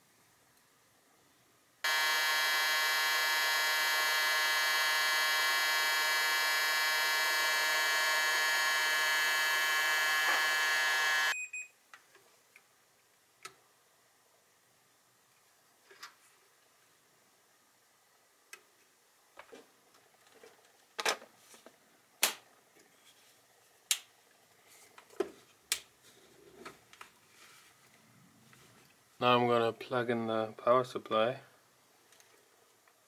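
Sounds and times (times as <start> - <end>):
hot air blower whining: 1.8 - 11.4.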